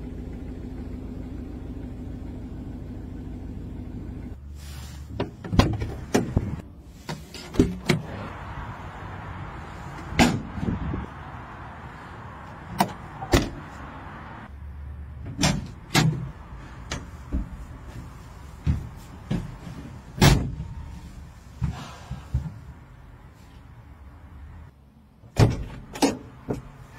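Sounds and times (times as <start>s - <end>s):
metal vehicle doors clunking: 5.1s - 8.2s, 9.9s - 10.9s, 12.6s - 13.7s, 15.2s - 20.9s, 25.3s - 26.9s.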